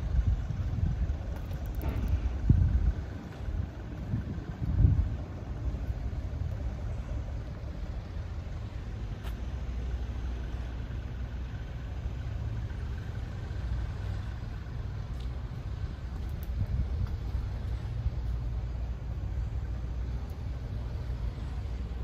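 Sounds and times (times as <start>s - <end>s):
low engine rumble: 0.0s - 22.0s.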